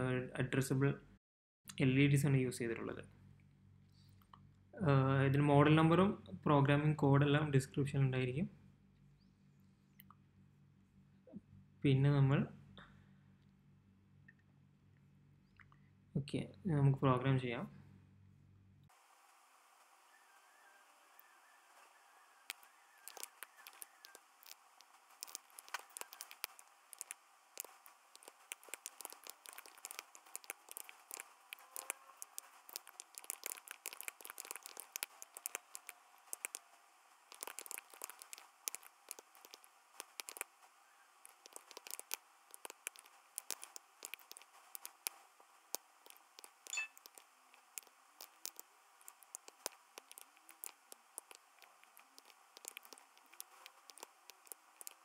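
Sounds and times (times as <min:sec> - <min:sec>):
computer keyboard typing: 0:22.5 - 0:36.6, 0:37.3 - 0:40.5, 0:41.3 - 0:45.1, 0:46.0 - 0:55.0.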